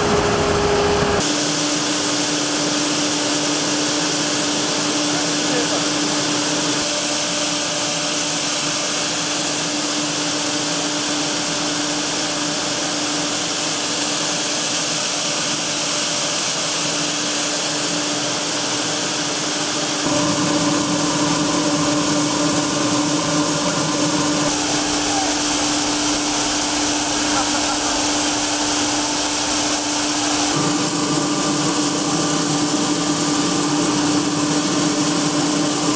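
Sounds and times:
machinery humming: 0.0 - 7.8, 17.4 - 35.9
grain pouring hiss: 1.2 - 35.9.

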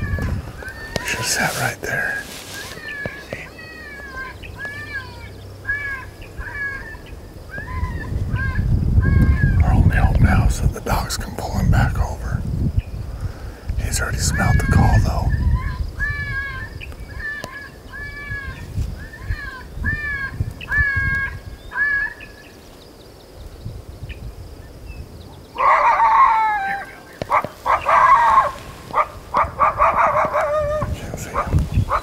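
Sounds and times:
short squealing calls: 0.0 - 9.6, 25.6 - 32.0
coyotes barking yipping and howling: 0.0 - 10.0, 13.9 - 22.6, 25.4 - 32.0.

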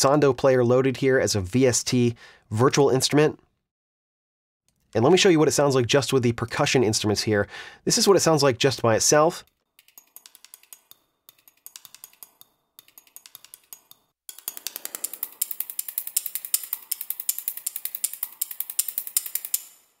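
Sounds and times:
dry percussion clicks and ticks: 9.4 - 20.0.

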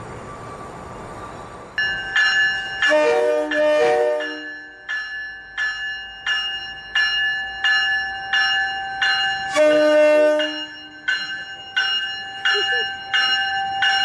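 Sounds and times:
train bell ringing: 1.7 - 14.0
train horn blast: 2.9 - 4.5, 9.5 - 10.7.

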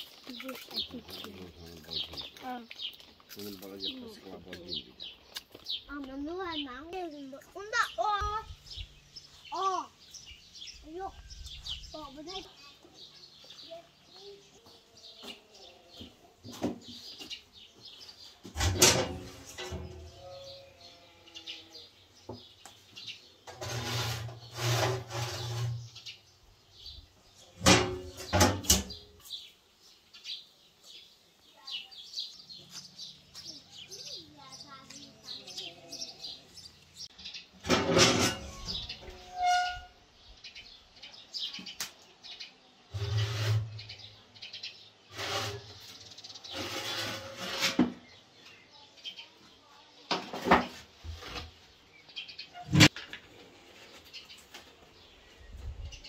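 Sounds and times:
birds chirping faintly: 0.0 - 56.0
metal baking tray scraping: 18.4 - 20.8, 23.5 - 26.2, 27.6 - 29.0, 37.6 - 40.0, 42.9 - 44.0, 45.1 - 48.2
iron oven door clanking shut: 18.6 - 20.0, 27.6 - 29.0.

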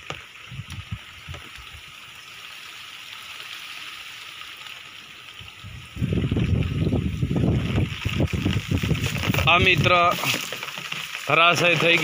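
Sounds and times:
light rain hissing: 0.0 - 12.0.

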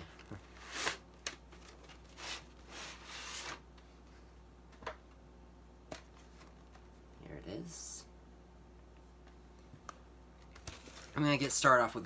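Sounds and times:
packaging rustling and scraping: 10.6 - 11.2.

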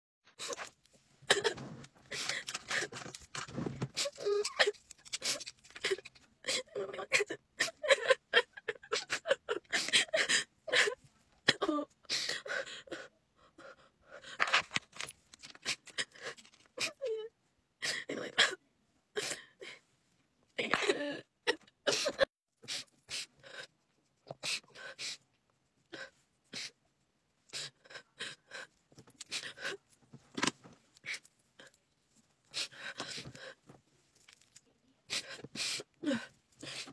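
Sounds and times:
woman sobbing and sniffling: 0.4 - 3.2, 3.8 - 14.7, 15.4 - 19.9, 20.6 - 26.8, 27.5 - 30.0, 32.5 - 33.7, 35.0 - 36.9
woman crying: 5.8 - 13.0.

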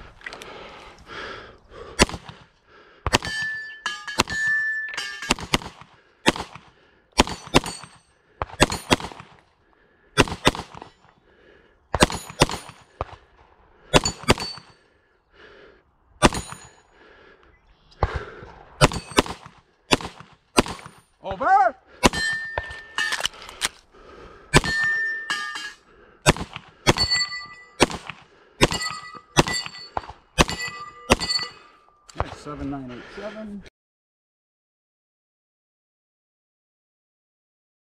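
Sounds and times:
steel targets ringing: 3.2 - 5.4, 22.1 - 23.2, 24.6 - 25.8, 26.9 - 27.9, 28.6 - 31.8
rapid pistol fire: 5.3 - 7.9, 8.5 - 9.4, 10.2 - 10.9, 18.0 - 21.0, 26.2 - 27.1, 27.8 - 29.7.

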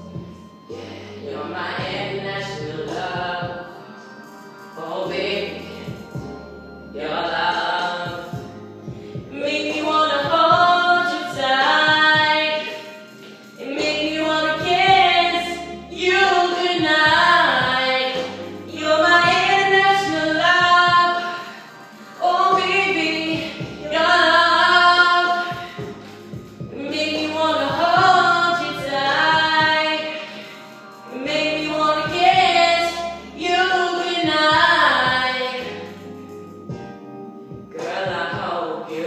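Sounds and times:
singer breathing: 0.6 - 1.3, 8.9 - 9.3, 30.2 - 31.0
person singing into a microphone: 0.7 - 3.8, 4.8 - 6.3, 9.3 - 12.9, 13.6 - 36.0, 37.7 - 39.0.

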